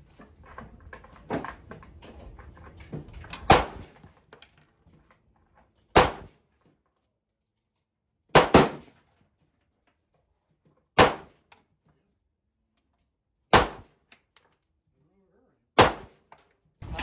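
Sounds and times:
pistol gunshots: 0:03.5 - 0:03.9, 0:06.0 - 0:06.3, 0:08.3 - 0:08.9, 0:11.0 - 0:11.4, 0:13.5 - 0:13.9, 0:15.8 - 0:16.2.

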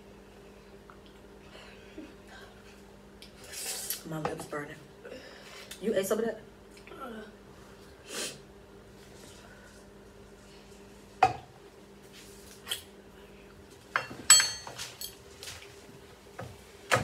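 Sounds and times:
faint steady hum: 0:00.0 - 0:17.0
spoons clinking on dishes: 0:14.0 - 0:15.2.

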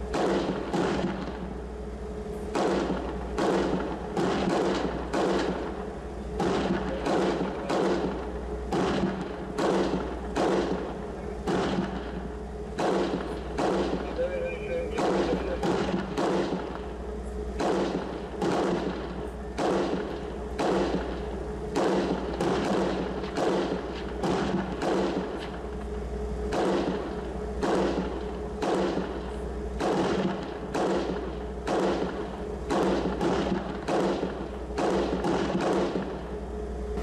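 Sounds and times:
engine humming: 0:00.0 - 0:37.0
gunshots with echo: 0:06.4 - 0:12.2, 0:12.8 - 0:16.8, 0:17.6 - 0:25.4, 0:29.8 - 0:36.2.

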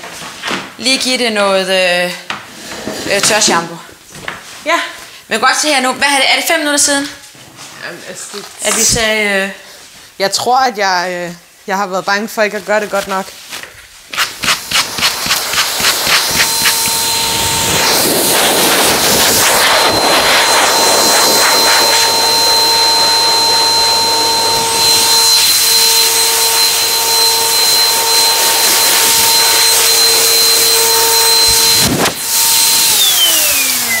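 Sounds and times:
electric blower motor whine: 0:14.7 - 0:34.0.

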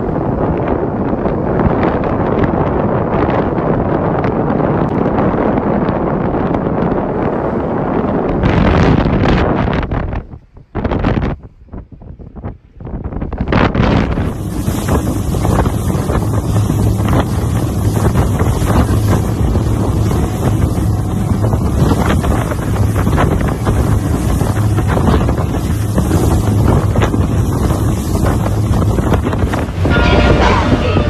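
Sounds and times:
water splashing against hull: 0:00.0 - 0:31.0
wind buffeting microphone: 0:00.0 - 0:31.0
low engine drone: 0:14.3 - 0:31.0.

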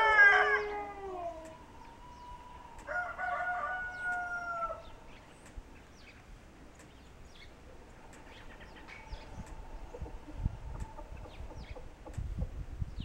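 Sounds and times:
rooster crowing: 0:00.0 - 0:05.0.

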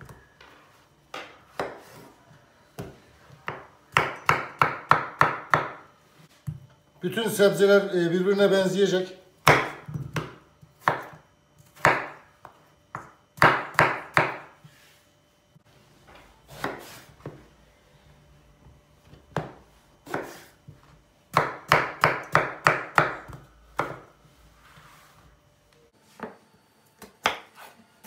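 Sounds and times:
knife chopping on wooden board: 0:01.2 - 0:02.1, 0:02.8 - 0:05.8, 0:09.4 - 0:14.6, 0:16.5 - 0:17.1, 0:19.3 - 0:20.5, 0:21.3 - 0:24.1, 0:27.0 - 0:27.7.

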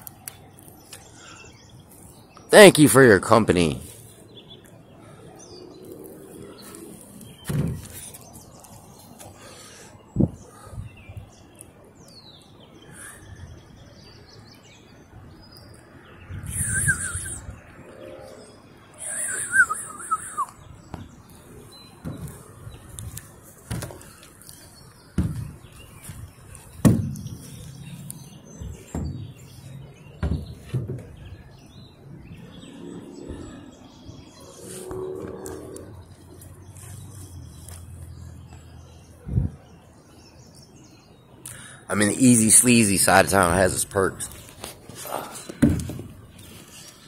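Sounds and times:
birds calling: 0:00.0 - 0:47.0
footsteps on wooden footbridge: 0:22.0 - 0:31.4.

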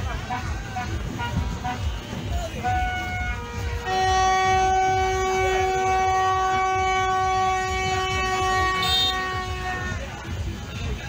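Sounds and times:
horn long steady note: 0:00.0 - 0:10.7.

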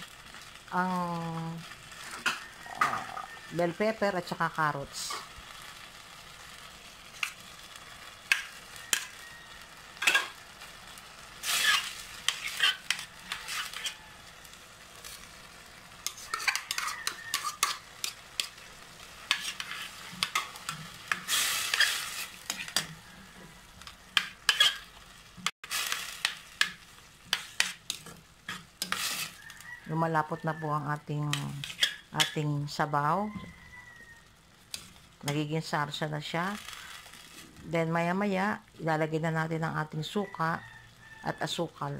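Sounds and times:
sauce sizzling: 0:00.0 - 0:40.0
utensil scraping and clinking pan: 0:08.3 - 0:09.2, 0:10.0 - 0:10.4, 0:11.4 - 0:14.0, 0:16.0 - 0:18.6, 0:19.2 - 0:23.0, 0:24.2 - 0:24.9, 0:25.7 - 0:29.4, 0:31.3 - 0:32.4.

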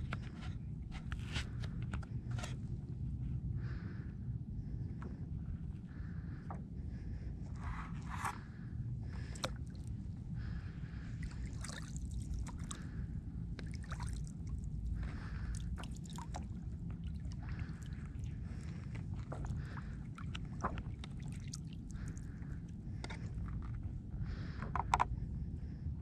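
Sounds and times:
wind rumble on microphone: 0:00.0 - 0:26.0
water sloshing and dripping: 0:09.2 - 0:24.5
small water splashes: 0:11.0 - 0:23.3.

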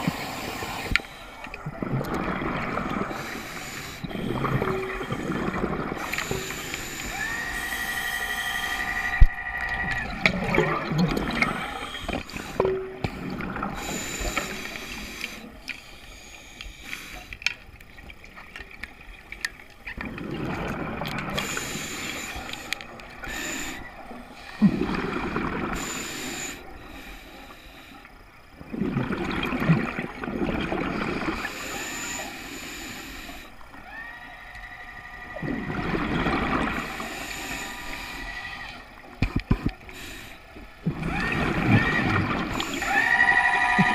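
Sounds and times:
diver exhaling bubbles: 0:01.6 - 0:14.8, 0:20.0 - 0:23.8, 0:24.5 - 0:26.6, 0:28.6 - 0:31.7, 0:35.3 - 0:37.7, 0:40.8 - 0:43.9
regulator inhalations: 0:03.0 - 0:09.4, 0:11.2 - 0:17.5, 0:21.3 - 0:24.8, 0:25.7 - 0:28.2, 0:31.4 - 0:33.6, 0:36.6 - 0:40.7
steady whistling tone: 0:06.2 - 0:10.6, 0:42.7 - 0:43.9.

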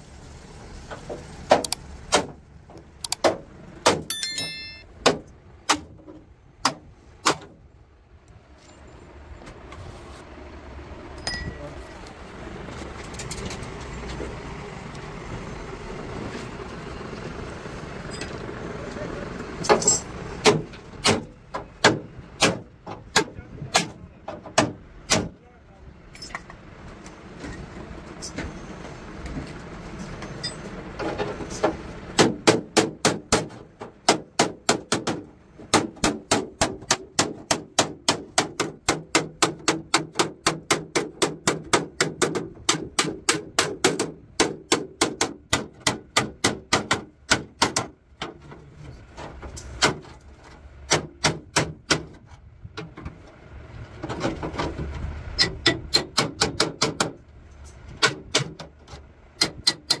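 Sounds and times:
hammer striking chisel on steel: 0:04.1 - 0:05.2, 0:59.4 - 1:00.0.

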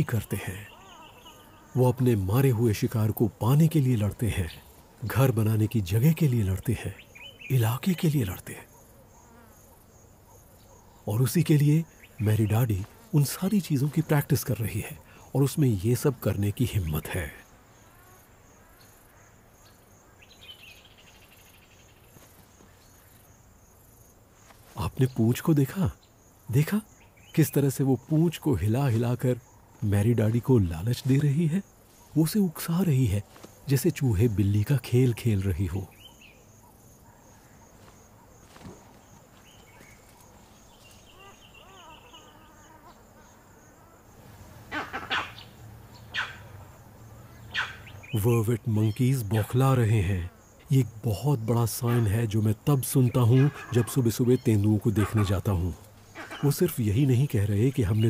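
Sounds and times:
high insect trill: 0:00.0 - 0:58.0
insects chirping: 0:00.0 - 0:58.0
monkey alarm calls: 0:44.7 - 0:48.3, 0:53.2 - 0:57.2.

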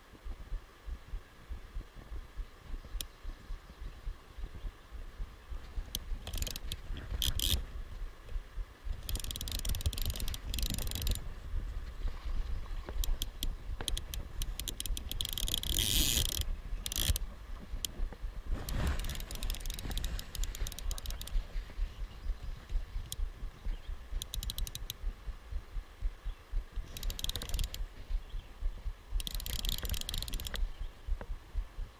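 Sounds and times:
low steady rumble: 0:00.0 - 0:31.9
metal pincers clicking on camera: 0:05.9 - 0:07.6, 0:09.0 - 0:11.3, 0:12.9 - 0:17.2, 0:18.6 - 0:21.4, 0:24.2 - 0:25.0, 0:26.8 - 0:27.9, 0:29.2 - 0:30.7.

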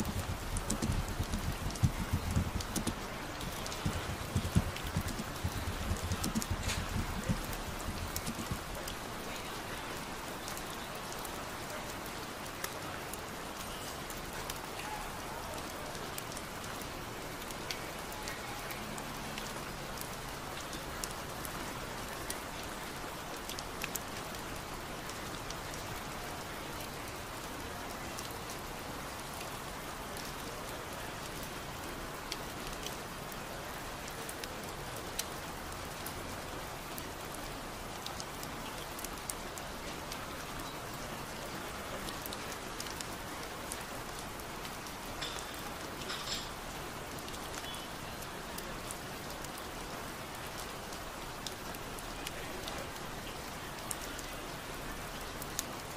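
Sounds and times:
steady rain: 0:00.0 - 0:55.9.

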